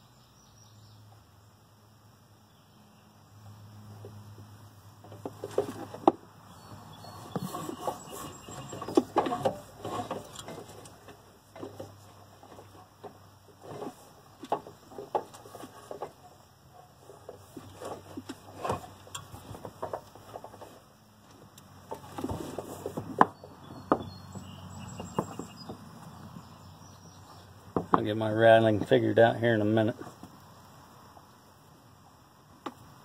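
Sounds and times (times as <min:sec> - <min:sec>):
tools and parts clattering: 0:07.2 - 0:20.8.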